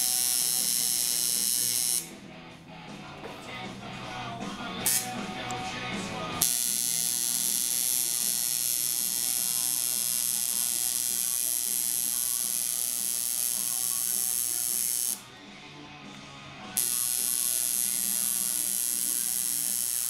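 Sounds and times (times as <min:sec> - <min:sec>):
tattoo machine buzzing: 0:00.0 - 0:02.2, 0:04.8 - 0:05.2, 0:06.4 - 0:15.2, 0:16.8 - 0:20.0.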